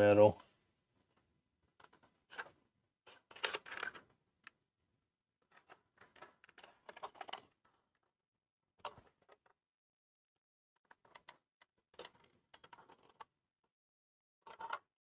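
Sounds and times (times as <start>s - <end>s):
small plastic parts clicking: 3.1s - 4.6s, 5.5s - 7.9s, 10.8s - 13.4s, 14.4s - 14.9s.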